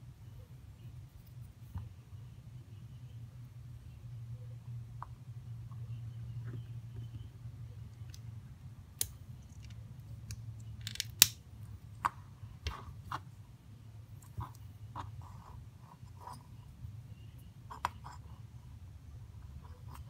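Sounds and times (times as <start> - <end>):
low steady hum: 0.0 - 20.0
clicks of plastic parts handled: 9.0 - 11.4.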